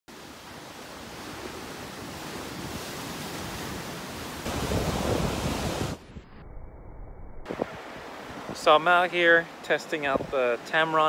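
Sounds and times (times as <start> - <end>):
surf breaking over rocks: 0.5 - 6.2.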